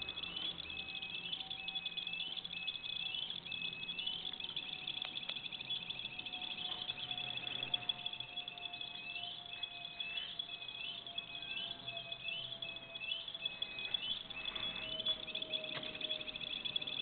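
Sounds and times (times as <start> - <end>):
high electronic chirping tones: 0.0 - 17.0.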